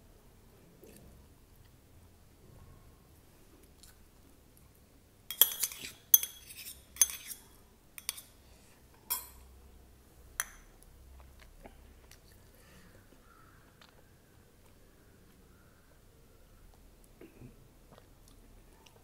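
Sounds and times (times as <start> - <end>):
metal spoon clinking on steel bowl: 5.3 - 8.3, 9.1 - 9.5.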